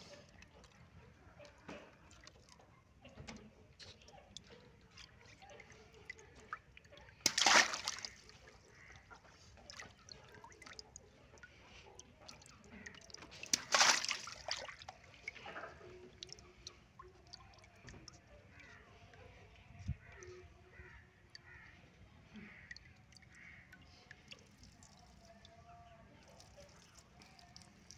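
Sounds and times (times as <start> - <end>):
water trickling and sloshing: 0.0 - 27.9
water balloons bursting with splash: 7.2 - 8.2, 13.4 - 14.8.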